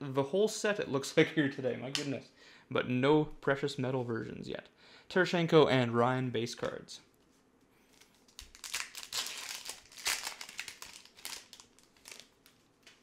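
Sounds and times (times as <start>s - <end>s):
foil wrapper tearing and crinkling: 7.9s - 13.0s.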